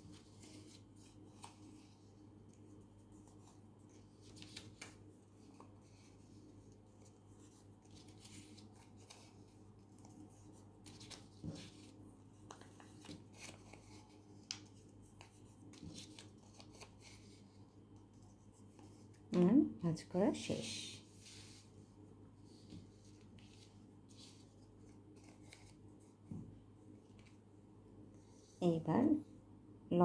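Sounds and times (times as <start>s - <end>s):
paper rustling and folding: 0.0s - 19.2s, 22.5s - 26.4s, 27.0s - 27.4s
low steady hum: 0.0s - 30.0s.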